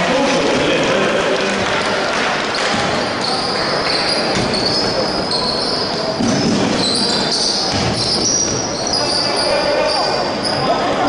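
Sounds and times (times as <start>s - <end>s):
murmur of crowd voices: 0.0s - 11.0s
basketball bouncing: 2.5s - 4.9s, 7.6s - 8.6s
sneakers squeaking on hardwood: 2.6s - 10.7s.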